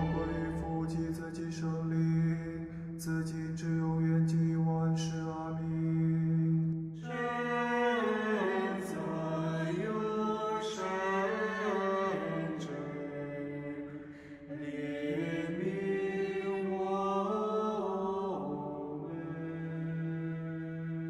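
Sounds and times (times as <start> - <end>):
men chanting: 0.0 - 1.2
low drone note: 0.0 - 1.5.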